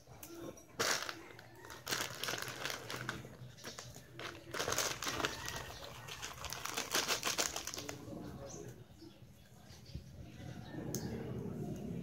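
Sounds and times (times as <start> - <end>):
plastic packet crinkling: 0.7 - 8.0.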